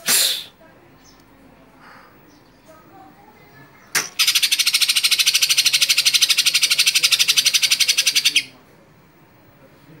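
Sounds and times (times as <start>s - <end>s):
bird rattling trill: 4.1s - 8.5s.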